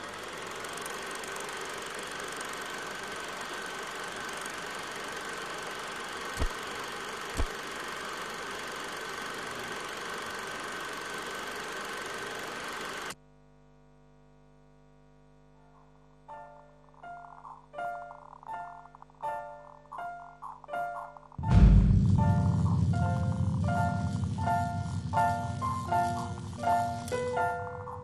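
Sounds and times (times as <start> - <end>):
film projector whirring and rattling: 0.0 - 13.2, 24.7 - 28.0
loud low thumps: 21.4 - 27.0.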